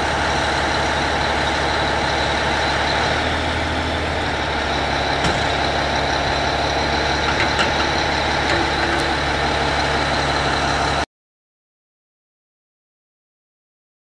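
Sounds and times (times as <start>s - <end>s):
heavy diesel engine running: 0.0s - 11.1s.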